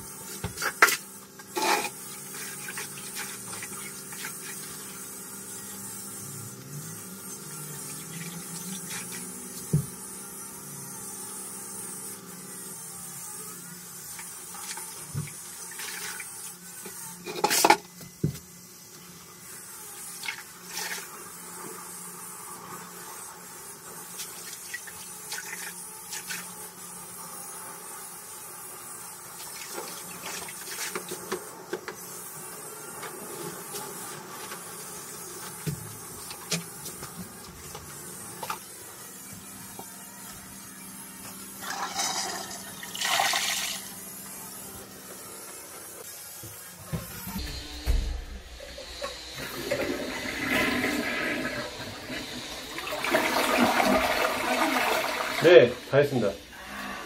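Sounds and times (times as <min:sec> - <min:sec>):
toilet flushing: 0:41.6 - 0:43.9, 0:48.6 - 0:55.9.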